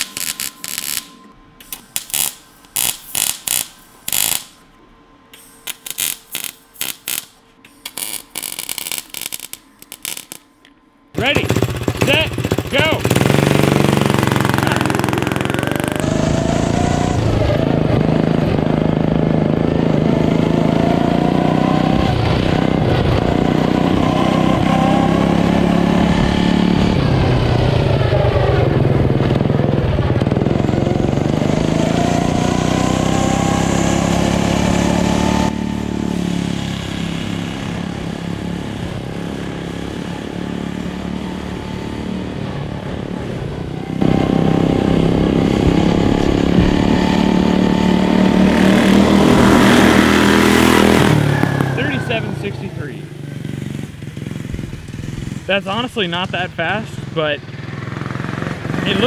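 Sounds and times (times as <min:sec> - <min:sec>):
go-kart engine running: 0:11.1 - 0:59.0.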